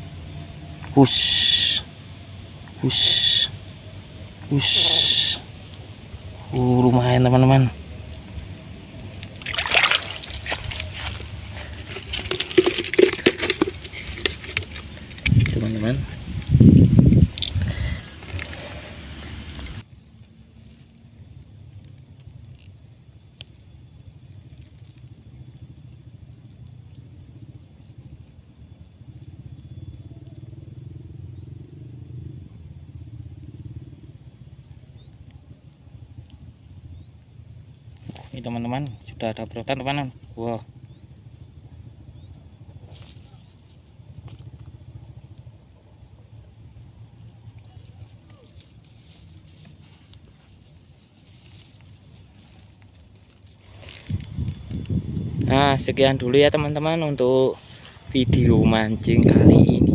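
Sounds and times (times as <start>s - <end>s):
engine low rumble: 0.0s - 59.9s
splashing in muddy water: 9.0s - 16.3s.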